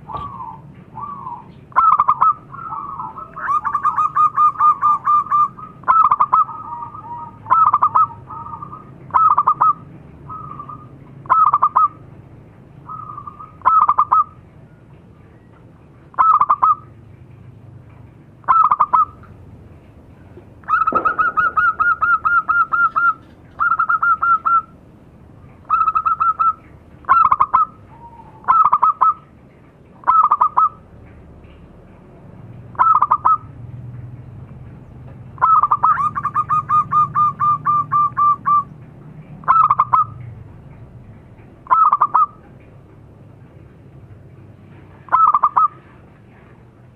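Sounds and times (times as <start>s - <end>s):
dove cooing: 0.0s - 12.0s, 12.9s - 14.4s, 16.2s - 16.9s, 18.4s - 19.3s, 20.6s - 24.8s, 25.6s - 29.3s, 30.0s - 30.8s, 32.7s - 33.6s, 35.4s - 38.8s, 39.4s - 40.3s, 41.6s - 42.4s, 45.0s - 46.0s.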